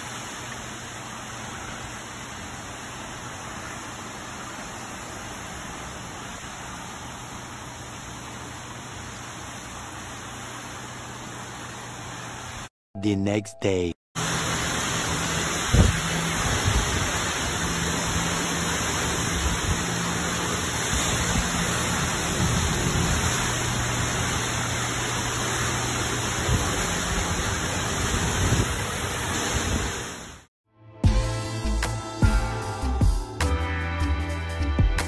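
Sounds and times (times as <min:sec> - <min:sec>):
heavy rain: 0:14.2 - 0:30.5
wind gusts thumping microphone: 0:15.6 - 0:18.2, 0:20.9 - 0:24.1, 0:26.4 - 0:30.0.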